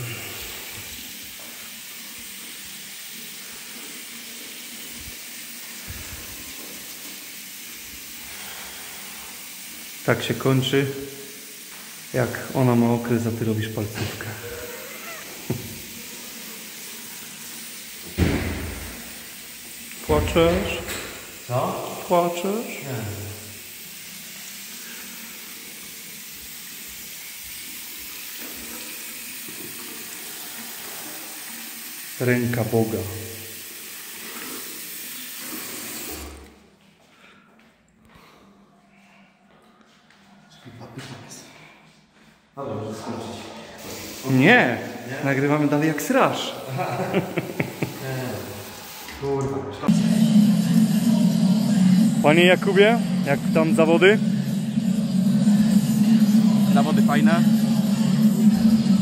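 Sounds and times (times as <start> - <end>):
tap water running onto hands: 0.0 - 36.5, 46.6 - 49.5
tap running into basin: 15.2 - 21.6, 33.8 - 36.6.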